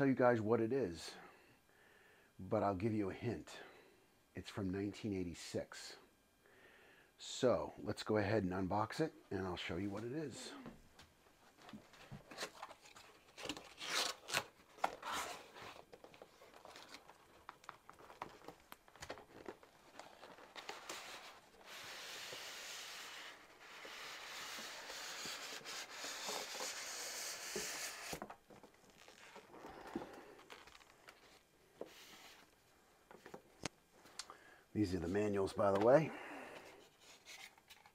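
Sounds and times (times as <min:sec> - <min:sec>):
packaging tearing and crinkling: 0:12.3 - 0:22.4.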